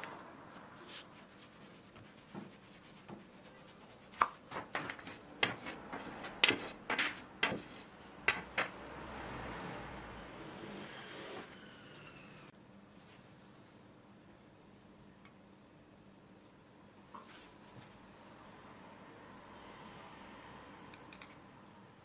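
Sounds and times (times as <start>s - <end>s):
dough rustling: 0.4s - 8.8s.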